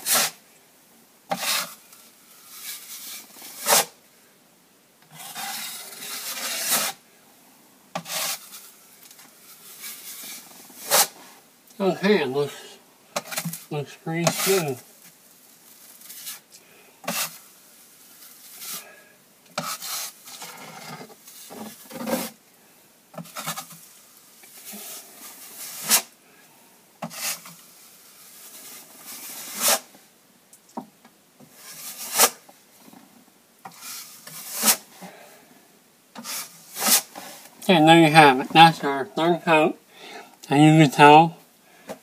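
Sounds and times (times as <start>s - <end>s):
drywall knife scraping compound: 0.0s - 0.4s, 1.3s - 1.9s, 2.5s - 4.0s, 5.1s - 7.0s, 8.0s - 8.8s, 9.6s - 11.2s, 13.2s - 14.9s, 16.1s - 17.4s, 19.6s - 22.4s, 24.6s - 26.1s, 27.0s - 29.9s, 31.6s - 32.5s, 33.7s - 34.9s, 36.2s - 37.4s.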